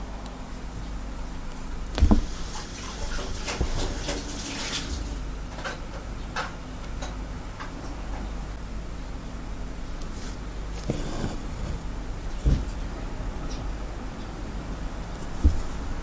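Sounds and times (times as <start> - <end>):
dull knock: 2.0 - 2.4, 15.4 - 15.8.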